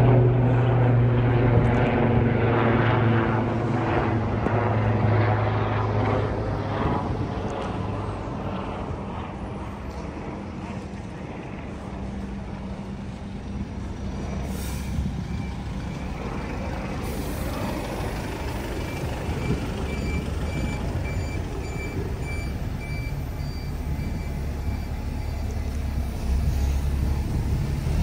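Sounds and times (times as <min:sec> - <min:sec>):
road traffic: 0:00.0 - 0:28.0
electronic warning beeps: 0:18.8 - 0:25.6.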